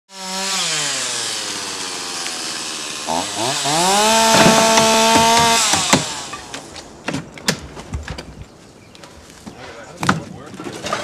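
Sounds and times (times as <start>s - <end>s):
chainsaw engine revving: 0.1s - 6.7s
wood and brush cracking: 3.1s - 11.0s.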